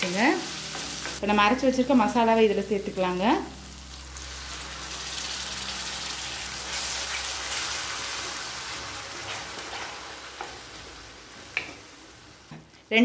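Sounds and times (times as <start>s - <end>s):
paste sizzling in hot oil: 3.4s - 12.4s.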